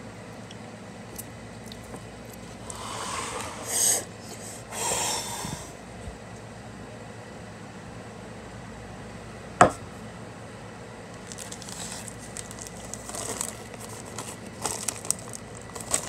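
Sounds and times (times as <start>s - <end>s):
person blowing hard breaths: 2.6s - 5.8s.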